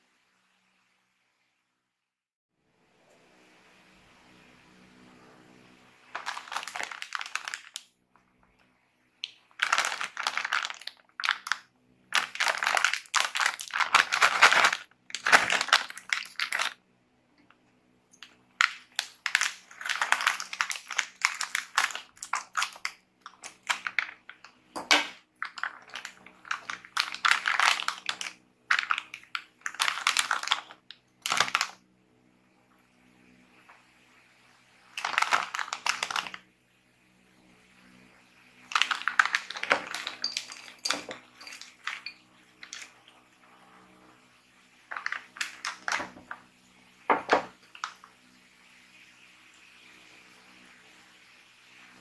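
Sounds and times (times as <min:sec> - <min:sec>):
snack bag crinkling: 0:06.2 - 0:07.9, 0:09.2 - 0:16.8, 0:18.6 - 0:31.8, 0:34.9 - 0:36.4, 0:38.7 - 0:43.1, 0:44.9 - 0:46.4
scissors cutting plastic bag: 0:12.2 - 0:16.7.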